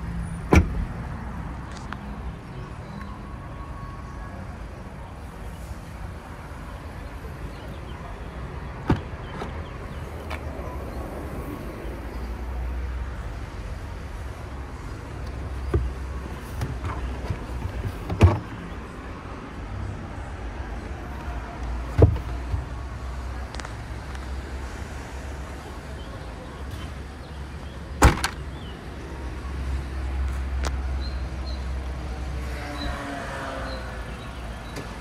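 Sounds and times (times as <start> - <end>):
car boot latch clicks and knocks: 0.5 - 0.9, 15.6 - 16.0, 16.6 - 18.5, 21.9 - 22.8, 28.0 - 28.4.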